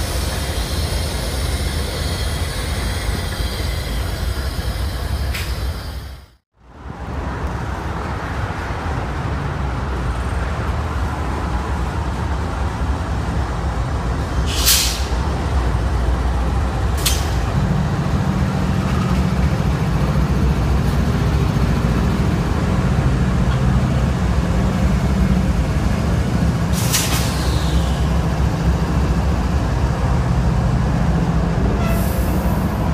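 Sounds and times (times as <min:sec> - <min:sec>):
diesel locomotive engine drone: 0:00.0 - 0:32.9
train wheels rumbling on rail: 0:00.0 - 0:32.9
short sharp air hisses: 0:14.5 - 0:15.2, 0:26.7 - 0:28.0.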